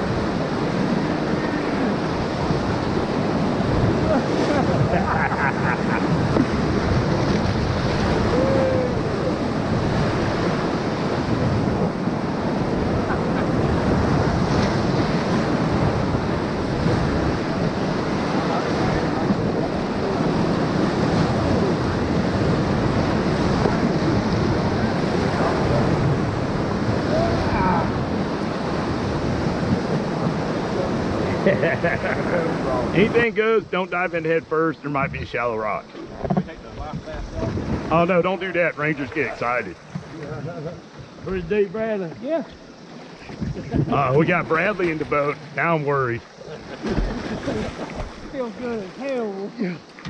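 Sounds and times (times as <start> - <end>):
whitewater rapids rushing: 0.0 - 35.6, 37.2 - 40.3, 41.0 - 50.0.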